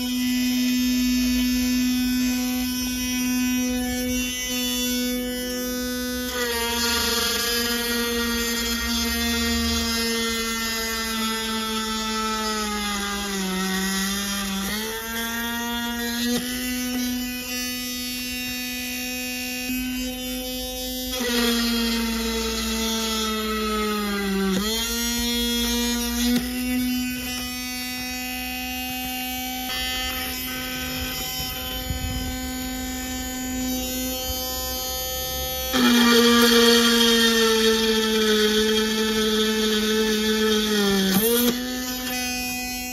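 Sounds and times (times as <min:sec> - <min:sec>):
drill press motor whining: 0:00.0 - 0:42.9.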